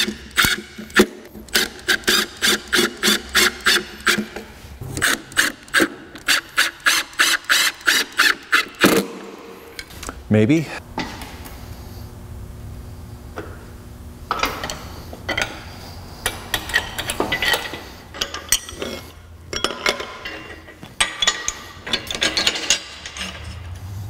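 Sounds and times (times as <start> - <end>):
metal chain clinking and rattling: 16.7 - 23.8.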